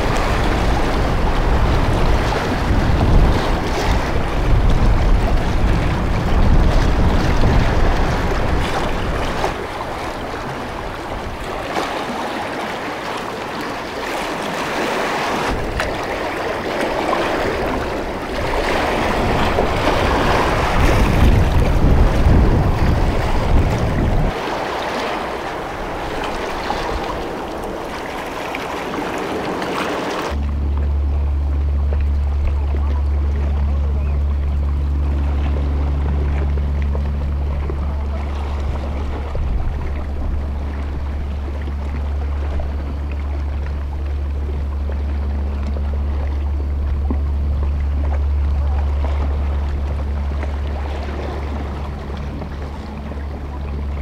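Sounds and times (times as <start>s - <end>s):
wind buffeting microphone: 0.0s - 12.7s, 14.6s - 54.0s
sea waves splashing on concrete: 0.0s - 31.0s.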